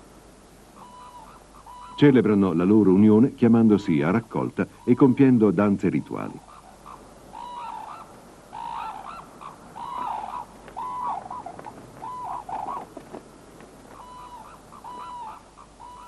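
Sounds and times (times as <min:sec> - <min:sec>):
cranes calling: 0:00.7 - 0:02.5, 0:06.0 - 0:16.0.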